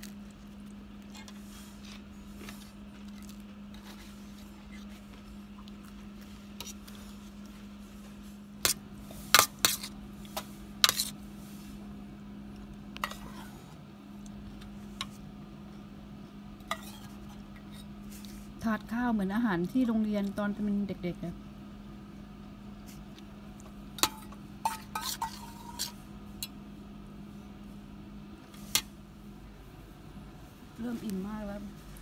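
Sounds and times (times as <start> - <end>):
cutlery clinking on metal tray: 24.0 - 25.9.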